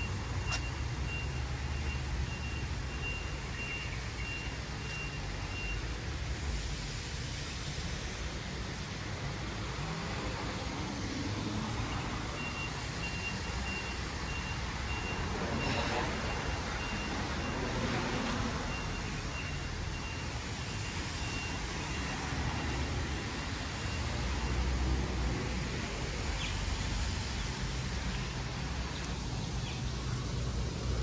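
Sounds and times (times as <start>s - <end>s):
vehicle reversing alarm beeps: 0.0s - 6.1s, 11.8s - 24.9s
low rumble of road traffic: 0.0s - 31.0s.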